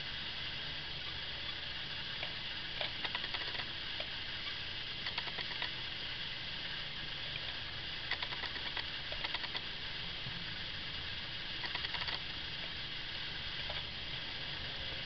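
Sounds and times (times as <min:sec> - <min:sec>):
steady hiss: 0:00.0 - 0:15.0
small rapid clicks: 0:02.8 - 0:04.1, 0:05.0 - 0:05.8, 0:08.0 - 0:09.7, 0:11.6 - 0:12.3.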